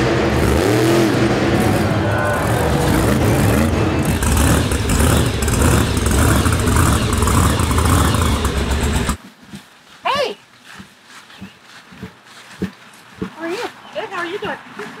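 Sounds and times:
monster truck engine rumbling: 0:00.0 - 0:09.2.

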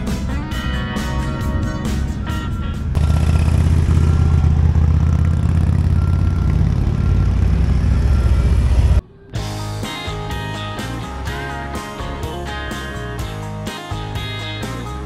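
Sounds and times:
motorcycle engine rumbling: 0:00.0 - 0:09.2.

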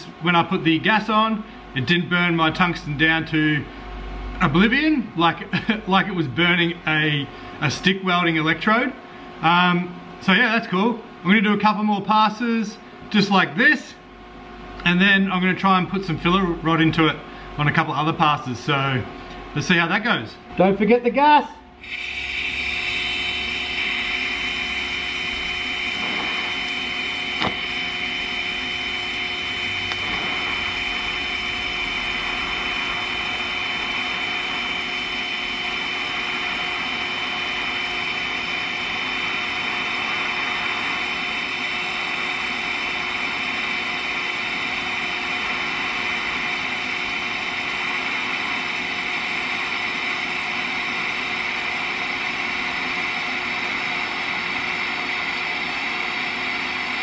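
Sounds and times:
welding arc hiss and buzz: 0:21.7 - 0:57.0.

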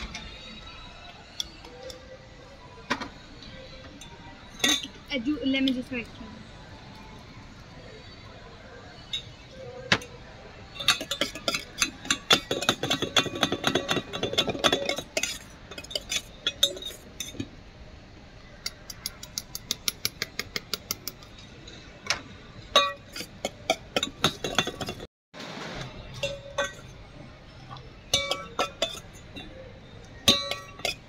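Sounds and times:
ladle clinking against a pot: 0:10.7 - 0:17.5, 0:22.7 - 0:25.1, 0:26.1 - 0:27.0, 0:28.0 - 0:31.0.

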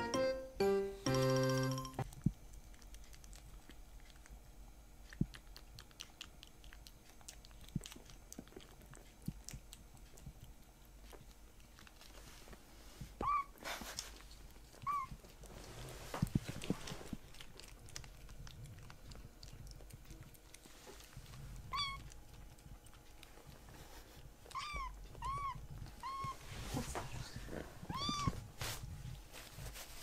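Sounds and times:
kittens mewing: 0:24.5 - 0:26.4, 0:27.8 - 0:28.4.

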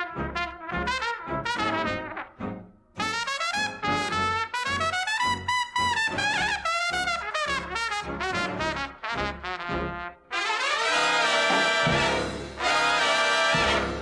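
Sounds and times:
music with brass melody and bass: 0:00.0 - 0:14.0.

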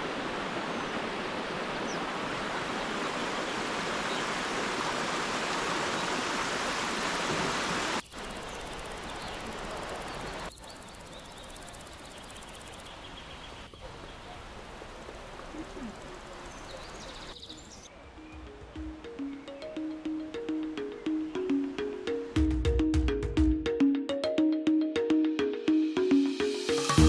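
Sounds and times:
waterfall splashing over rocks: 0:00.0 - 0:10.5
background hiss: 0:00.0 - 0:24.4.

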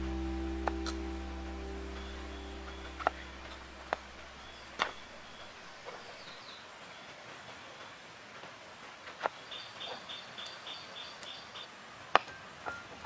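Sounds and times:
background music: 0:00.0 - 0:04.3
bird chirping faintly: 0:00.0 - 0:07.1.

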